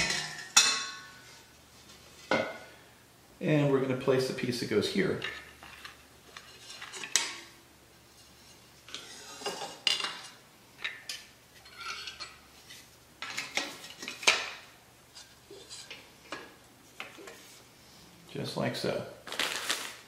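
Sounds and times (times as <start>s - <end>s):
sliding and scraping on countertop: 8.1s - 10.3s.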